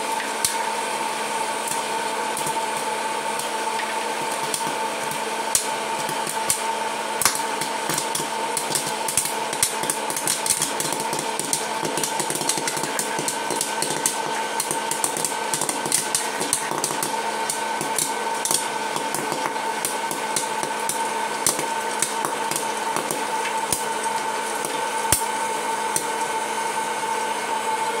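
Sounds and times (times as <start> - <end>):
popcorn popper fan whine: 0.0 - 28.0
popcorn kernels popping: 1.6 - 26.2
popcorn dropping into bowl: 7.2 - 23.9.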